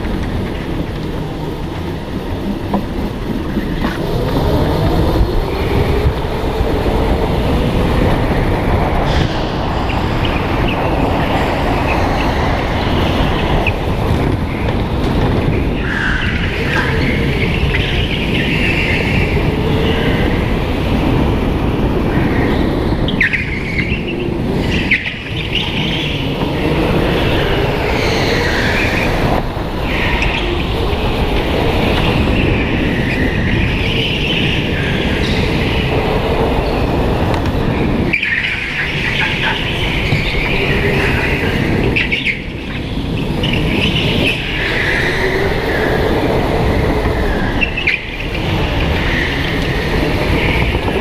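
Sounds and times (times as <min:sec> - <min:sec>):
go-kart motor: 0:00.0 - 0:08.4.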